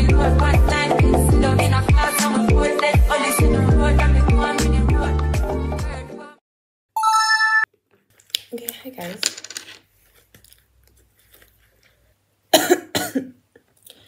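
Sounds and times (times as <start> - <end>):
woman coughing: 12.5 - 13.4.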